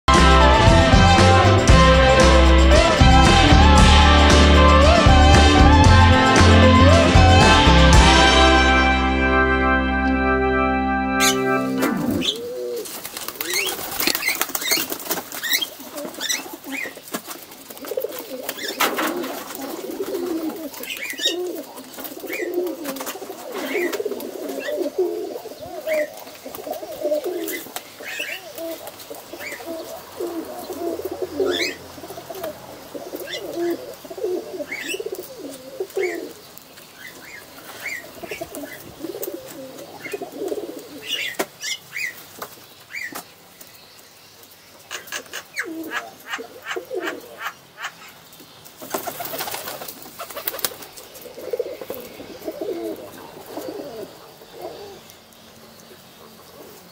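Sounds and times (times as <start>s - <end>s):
short high chirps: 11.2s - 12.3s
pigeons cooing: 11.2s - 36.4s, 37.0s - 42.2s, 45.0s - 48.0s, 48.8s - 55.1s.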